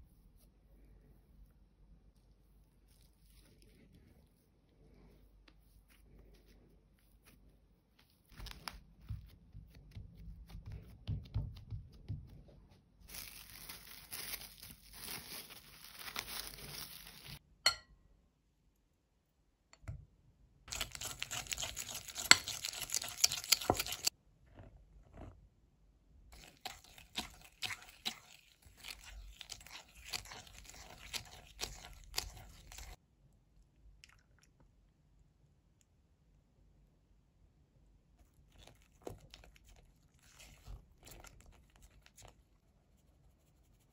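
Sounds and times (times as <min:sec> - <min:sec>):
cling film crinkling: 0:13.1 - 0:17.4
whisk scraping a glass bowl: 0:20.7 - 0:24.1, 0:26.4 - 0:33.0.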